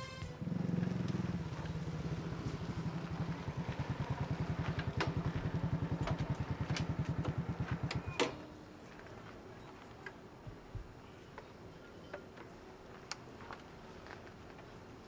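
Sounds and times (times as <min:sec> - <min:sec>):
small motorcycle engine idling: 0:00.4 - 0:08.3.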